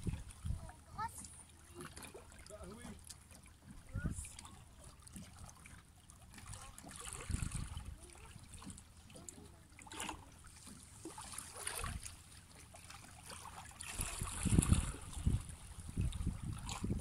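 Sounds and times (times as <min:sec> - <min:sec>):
wind rumbling on microphone: 0:00.0 - 0:01.1, 0:03.8 - 0:04.3, 0:07.1 - 0:08.0, 0:13.9 - 0:17.0
water lapping on rocky shore: 0:00.0 - 0:17.0.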